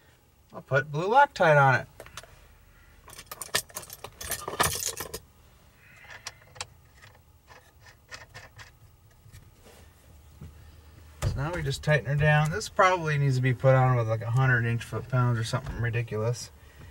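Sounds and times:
metal parts and tools clinking: 0:03.1 - 0:05.2.

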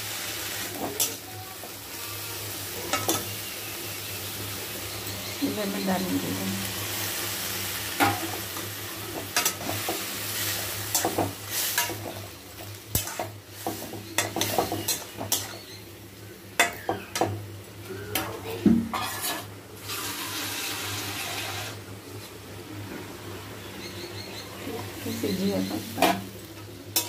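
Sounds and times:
frying sizzle: 0:00.0 - 0:27.0
spatula scraping metal pan: 0:18.9 - 0:20.4.

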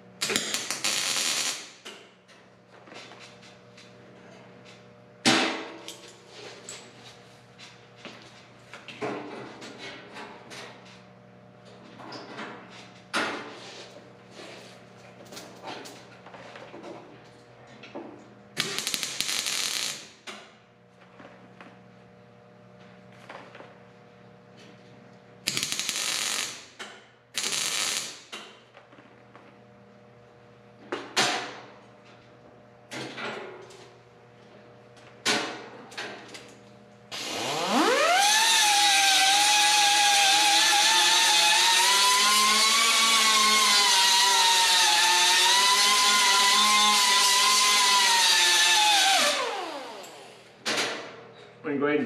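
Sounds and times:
power tool whining: 0:37.1 - 0:50.6.

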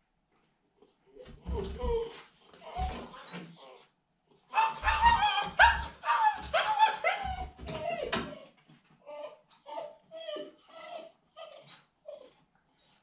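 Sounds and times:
puppy barking and yelping: 0:04.4 - 0:08.1.

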